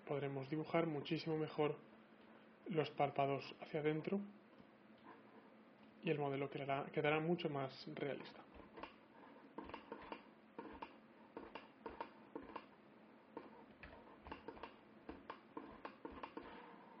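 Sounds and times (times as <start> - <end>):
computer mouse and keyboard clicking: 8.2 - 12.7, 13.4 - 16.7.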